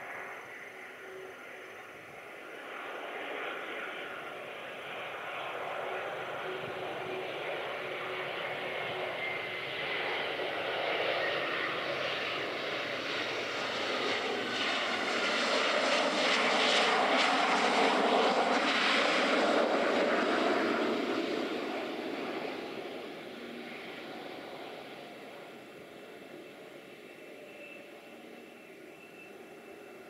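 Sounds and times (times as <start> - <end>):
jet engines roaring: 0.0 - 30.0.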